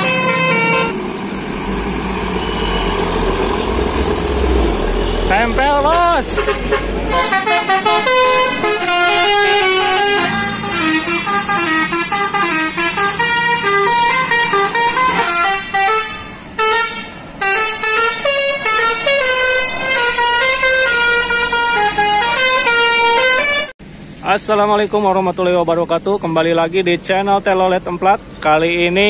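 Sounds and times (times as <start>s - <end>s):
multi-tone melodic bus horns: 0.0s - 23.8s.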